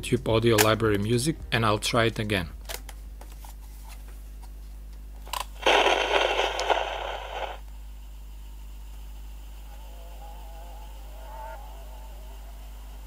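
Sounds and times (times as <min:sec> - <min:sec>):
faint hum: 0:00.0 - 0:13.0
loud crackling from small speaker: 0:05.6 - 0:07.6.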